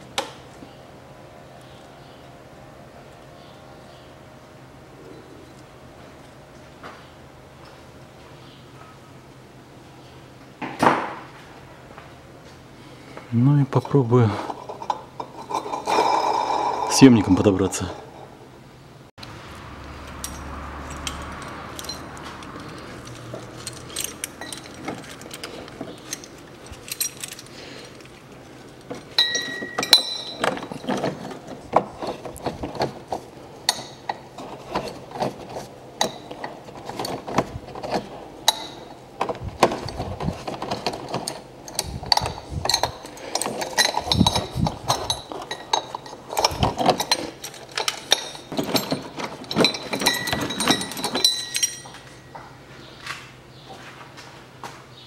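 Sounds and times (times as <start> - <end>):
metal tools clinking: 20.0 - 52.5.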